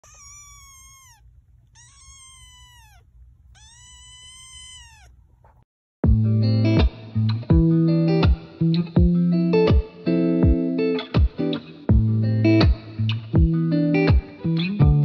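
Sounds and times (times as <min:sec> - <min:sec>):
cat meowing: 0:00.0 - 0:05.2
low steady hum: 0:00.0 - 0:05.6
loud electric guitar music: 0:06.0 - 0:15.0.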